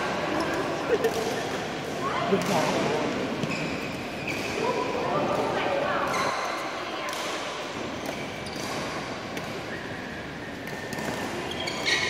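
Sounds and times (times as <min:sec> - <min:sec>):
indoor hall background noise: 0:00.0 - 0:12.0
rackets striking shuttlecock: 0:04.3 - 0:09.7, 0:10.5 - 0:11.8.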